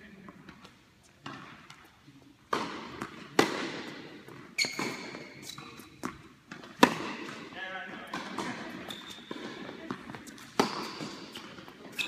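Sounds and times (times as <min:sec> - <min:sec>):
tennis ball struck by rackets: 0:02.5 - 0:05.4, 0:06.0 - 0:07.4, 0:08.0 - 0:12.0
tennis ball bouncing on hard court: 0:02.5 - 0:07.4, 0:08.0 - 0:12.0.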